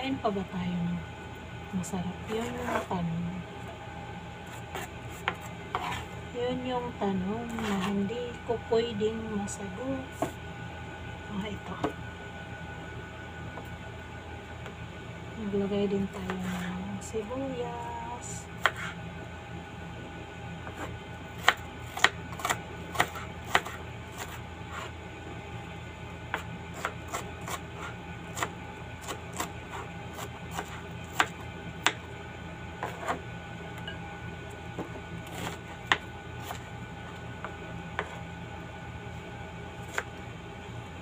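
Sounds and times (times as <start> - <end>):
steady low hum: 0.0 - 41.0
knife chopping on cutting board: 4.5 - 6.1, 18.6 - 19.0, 20.6 - 24.9, 26.3 - 32.0, 32.8 - 33.2, 34.8 - 36.6, 37.4 - 38.2.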